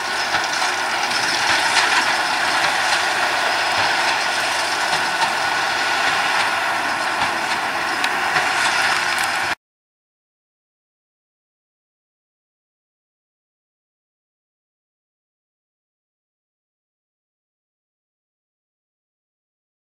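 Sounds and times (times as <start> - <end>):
tractor and baler clatter: 0.0 - 9.6.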